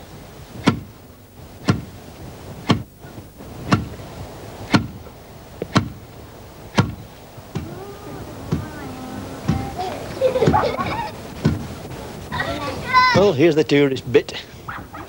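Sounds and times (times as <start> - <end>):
wooden pestle pounding in mortar: 5.7 - 6.0.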